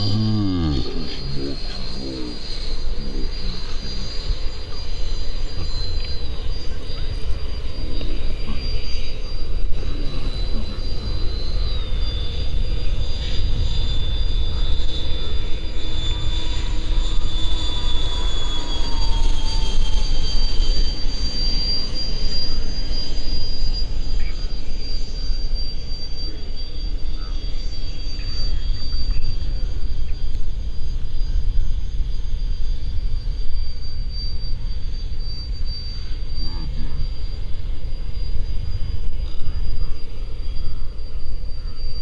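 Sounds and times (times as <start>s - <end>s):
model jet fan whining: 0.0s - 42.0s.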